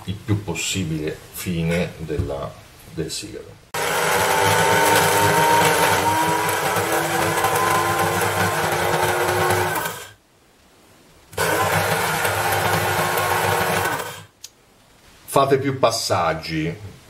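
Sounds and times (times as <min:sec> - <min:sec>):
electric grinder motor whine: 0:03.8 - 0:10.2, 0:11.4 - 0:14.3.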